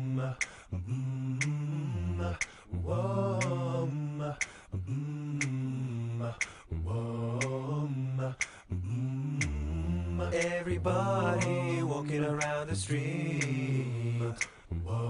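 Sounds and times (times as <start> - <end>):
voices singing: 0.0 - 15.0
sharp tick: 5.4 - 5.6.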